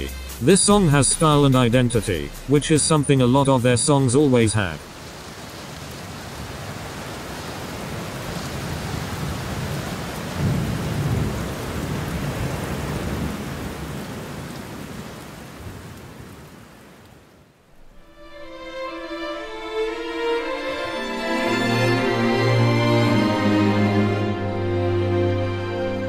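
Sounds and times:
steady rain: 2.0s - 26.0s
low roll of thunder: 8.6s - 16.4s.

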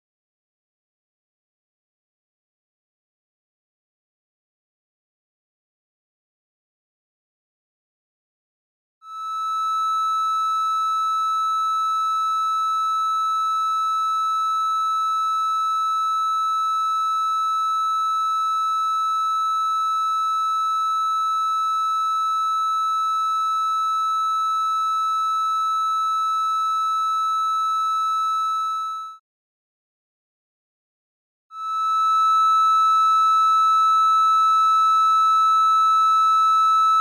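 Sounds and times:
steady triangle-wave tone: 9.1s - 13.3s, 31.6s - 35.9s.

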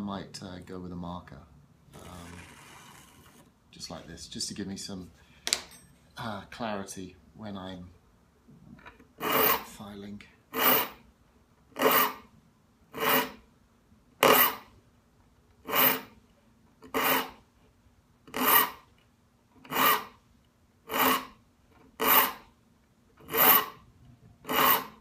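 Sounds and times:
file rasping across saw teeth: 9.2s - 9.8s, 10.5s - 11.0s, 11.8s - 12.3s, 12.9s - 13.4s, 14.2s - 14.7s, 15.6s - 16.2s, 16.8s - 17.4s, 18.3s - 18.9s, 19.6s - 20.2s, 20.9s - 22.5s, 23.2s - 23.8s, 24.4s - 25.0s.

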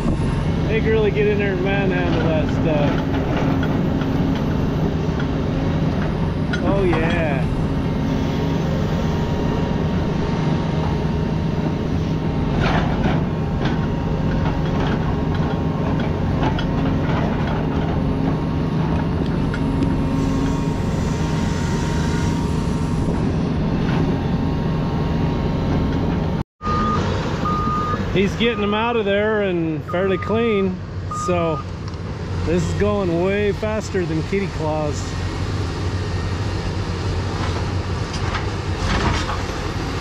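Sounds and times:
excavator diesel engine running: 0.0s - 40.0s
reversing alarm beeping: 26.6s - 28.8s, 29.9s - 31.7s.

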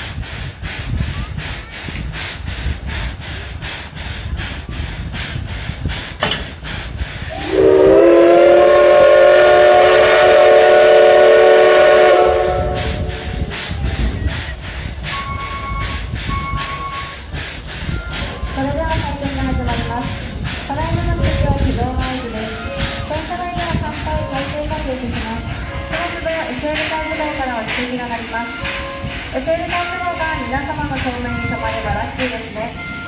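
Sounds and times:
steam hissing: 0.0s - 33.0s
steam whistle blast: 7.3s - 13.5s.

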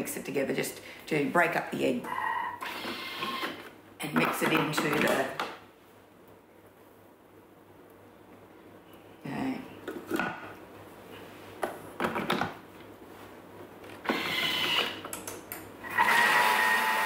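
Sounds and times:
mixer motor whining: 2.2s - 3.7s, 14.0s - 15.1s, 15.8s - 17.0s.

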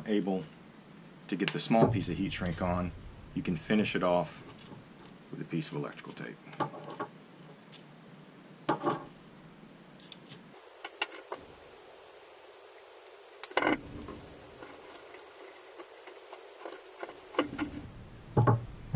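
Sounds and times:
cable handling clicks and knocks: 15.8s - 17.8s.

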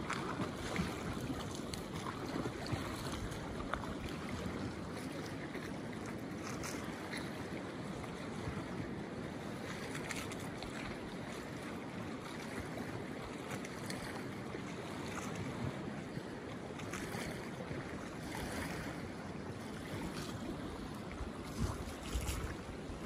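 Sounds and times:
small water splashes: 0.0s - 23.0s
river water rushing: 16.8s - 23.0s.

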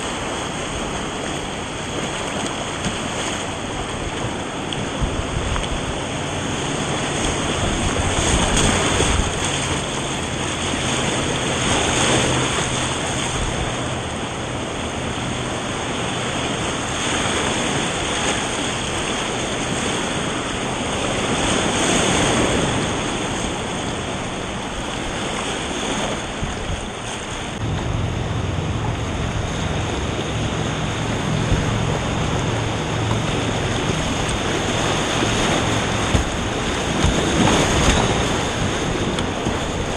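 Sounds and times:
whitewater rapids rushing: 0.0s - 39.9s
deep rumble: 26.4s - 39.9s.

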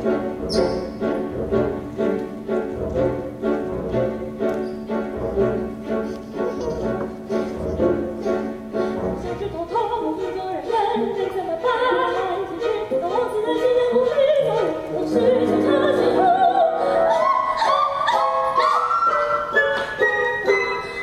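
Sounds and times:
instrumental accompaniment: 0.0s - 21.0s
high operatic singing voice: 9.2s - 19.6s.

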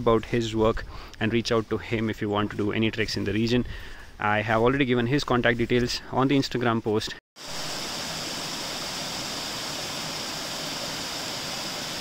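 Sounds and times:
stream rushing over rocks: 7.4s - 12.0s.

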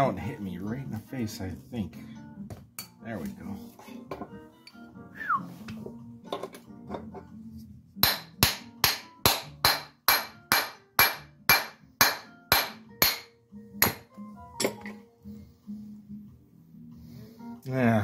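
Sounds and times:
hammer tapping on metal: 8.0s - 14.9s.

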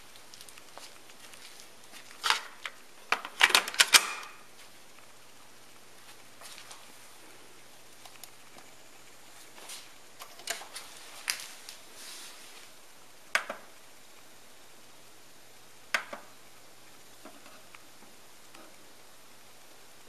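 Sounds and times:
buttons clicking on hi-fi equipment: 13.3s - 13.8s, 15.9s - 16.3s.

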